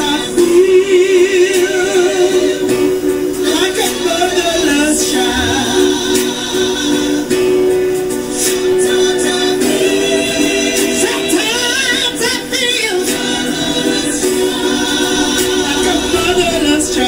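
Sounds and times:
sustained drone note: 5.1s - 7.1s.

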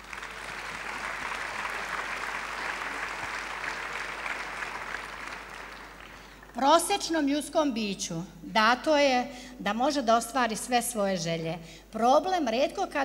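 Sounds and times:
large audience applauding: 0.0s - 6.6s.

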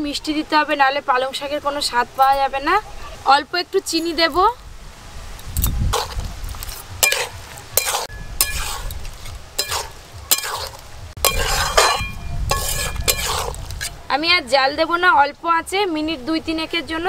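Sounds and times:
food sizzling: 5.5s - 14.0s
metal spatula scraping a pan: 6.0s - 14.0s.

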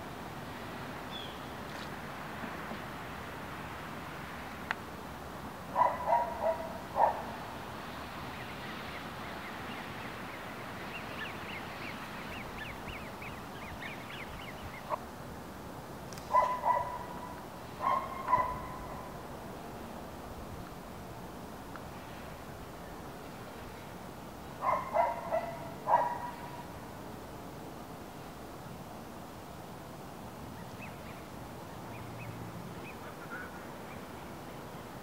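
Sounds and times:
outdoor background hiss: 0.0s - 35.0s
small bird twittering: 8.4s - 15.0s.

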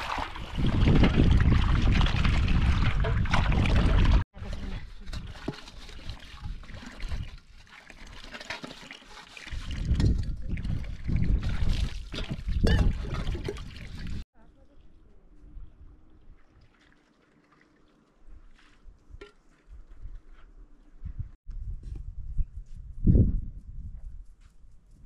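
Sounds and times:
water splashing and trickling: 0.0s - 19.6s
metal basins knocking: 12.1s - 13.9s.

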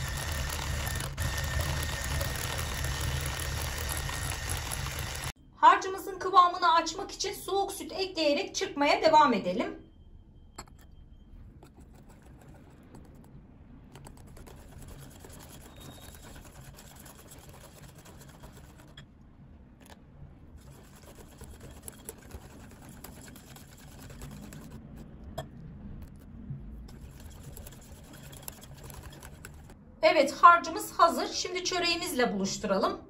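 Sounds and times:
wire whisk scraping glass bowl: 20.6s - 24.8s, 26.9s - 29.7s.

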